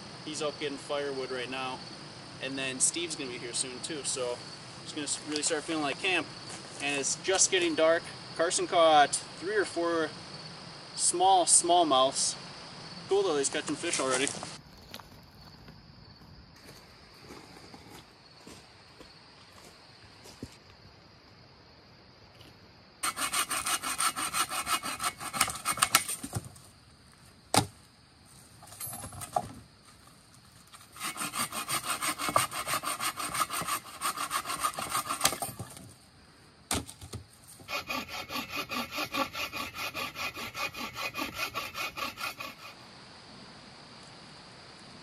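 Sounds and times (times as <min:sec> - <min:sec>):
hand saw cutting wood: 0:23.0 - 0:26.4, 0:30.9 - 0:35.8, 0:37.6 - 0:42.8.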